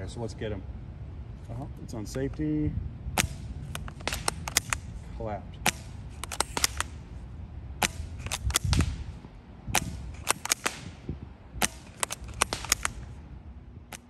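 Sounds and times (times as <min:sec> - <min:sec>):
rifle bolt clicking: 0:03.2 - 0:04.9, 0:05.7 - 0:07.0, 0:07.8 - 0:09.0, 0:09.8 - 0:10.9, 0:11.6 - 0:13.1
suppressed rifle shot: 0:03.2 - 0:05.0, 0:05.6 - 0:07.0, 0:07.8 - 0:13.2.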